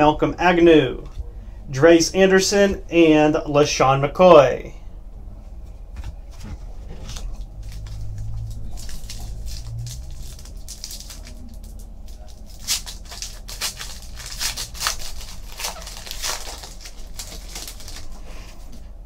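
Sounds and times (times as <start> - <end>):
foil wrapper crinkling and tearing: 7.1 - 18.7.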